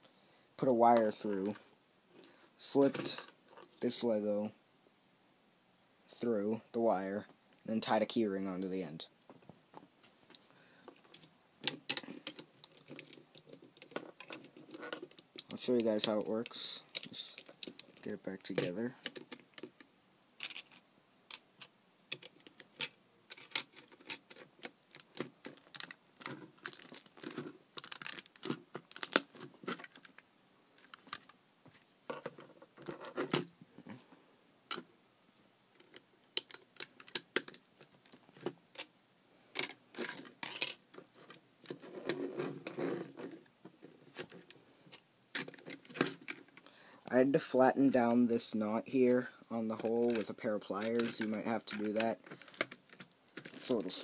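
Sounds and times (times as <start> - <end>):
plastic bricks clicking and rattling: 10.9 - 21.4, 22.1 - 30.2, 35.8 - 38.9, 39.6 - 43.4, 49.8 - 54.0.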